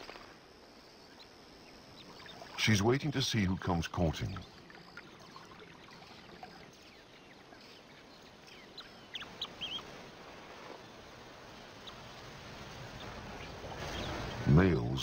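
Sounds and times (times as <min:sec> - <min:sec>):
low steady hiss: 0:00.0 - 0:15.0.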